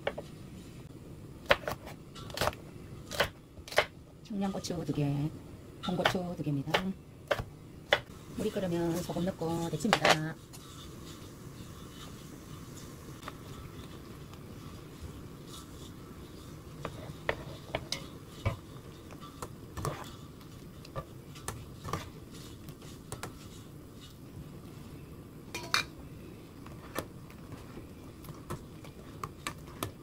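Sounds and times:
water boiling: 4.2s - 30.0s
metal strainer clinking against pan: 25.5s - 25.9s.

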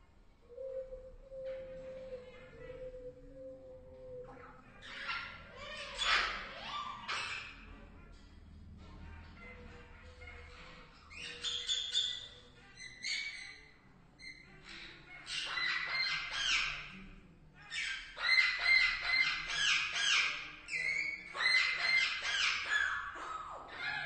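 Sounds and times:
parakeets squawking: 4.6s - 8.2s, 8.8s - 24.0s.

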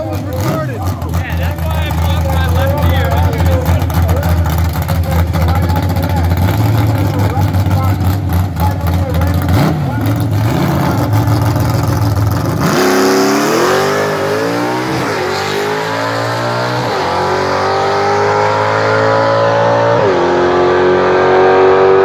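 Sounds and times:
drag car engine accelerating: 0.0s - 22.0s.

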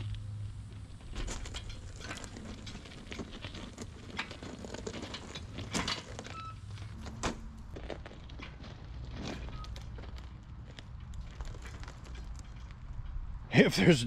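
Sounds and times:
hoist casters rolling on plywood: 0.7s - 13.3s
metal frame clicks and rattles: 1.0s - 13.3s.

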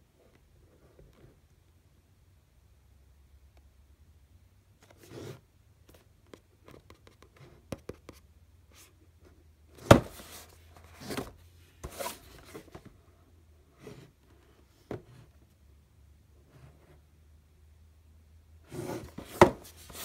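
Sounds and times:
knocks on cardboard box: 9.8s - 10.2s
hands handling cardboard box: 9.8s - 13.1s, 18.7s - 20.0s.

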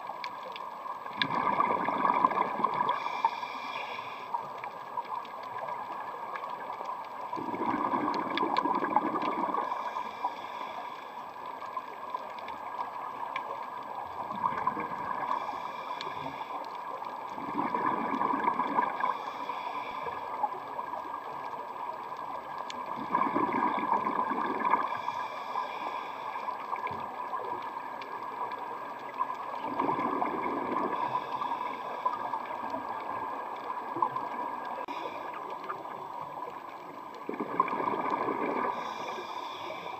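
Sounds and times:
exhaled bubbles rushing: 1.1s - 3.0s, 7.3s - 9.8s, 14.2s - 15.3s, 17.3s - 19.1s, 22.8s - 25.0s, 29.6s - 31.2s, 37.2s - 38.9s
underwater hiss: 1.1s - 39.9s.

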